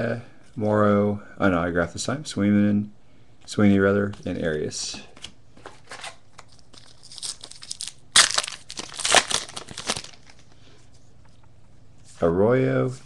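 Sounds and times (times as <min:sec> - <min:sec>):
cards clicking and rustling: 0:05.2 - 0:10.4
wrapper crinkling as torn open: 0:06.4 - 0:10.4.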